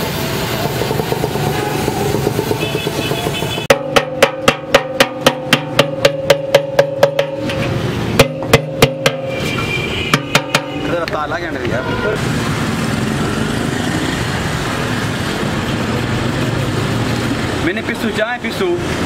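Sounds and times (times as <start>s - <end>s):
gas welding torch hissing: 0.0s - 3.7s
background music with drum beat: 0.4s - 10.9s.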